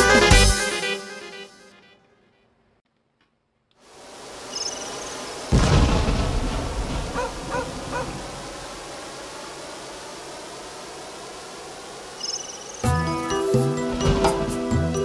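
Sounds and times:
synthesized hiss: 0:03.8 - 0:15.0
loud thunder-like boom: 0:05.5 - 0:08.4.

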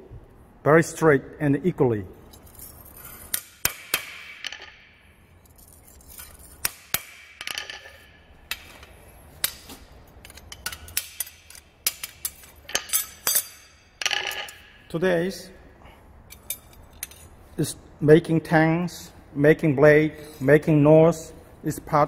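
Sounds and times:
hammer striking steel blade: 0:06.6 - 0:07.6.

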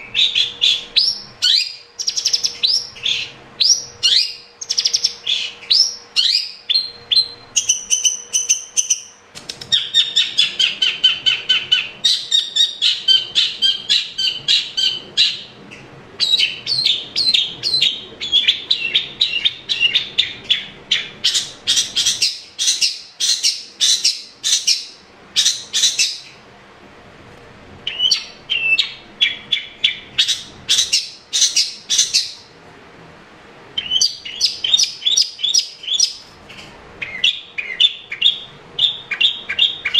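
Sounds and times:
shrike singing chattering whistles: 0:33.8 - 0:36.2.

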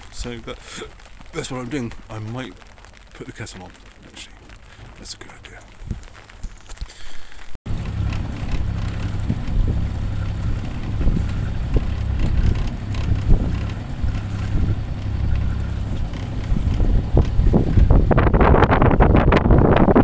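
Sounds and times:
wind buffeting microphone: 0:00.0 - 0:06.9, 0:07.7 - 0:20.0
outboard motor running: 0:07.7 - 0:19.9.

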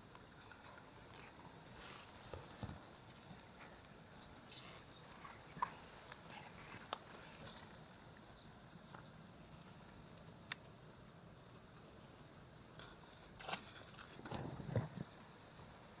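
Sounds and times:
small crackles and ticks: 0:00.0 - 0:10.8.

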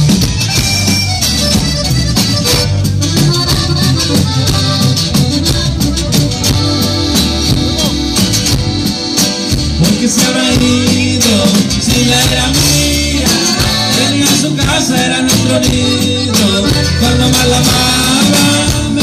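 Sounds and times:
button accordion: 0:00.0 - 0:19.0
drums: 0:00.0 - 0:19.0
guitar: 0:00.0 - 0:19.0
man singing: 0:09.7 - 0:19.0.

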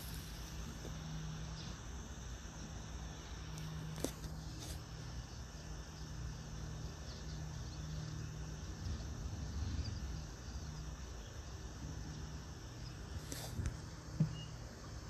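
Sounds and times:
faint high chirps: 0:12.7 - 0:15.0.

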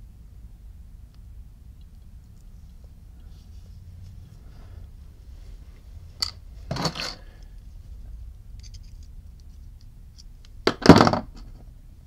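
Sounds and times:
handling noise of metal parts: 0:06.2 - 0:07.6, 0:08.5 - 0:11.6.

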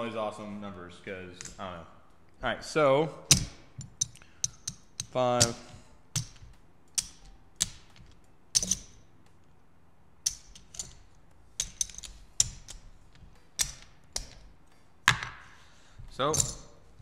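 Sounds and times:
casino chips clacking: 0:03.3 - 0:09.1, 0:10.3 - 0:16.8.

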